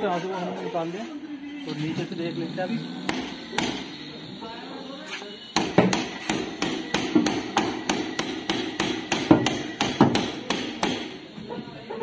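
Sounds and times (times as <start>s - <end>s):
hammer blows on metal: 2.9s - 4.0s, 5.5s - 11.3s.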